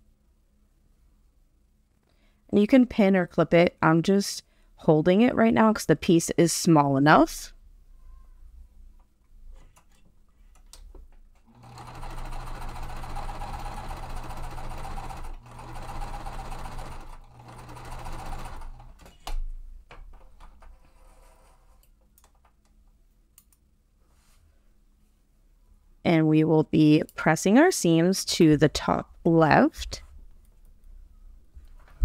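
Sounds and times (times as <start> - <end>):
sewing machine stitching: 11.4 - 19.1.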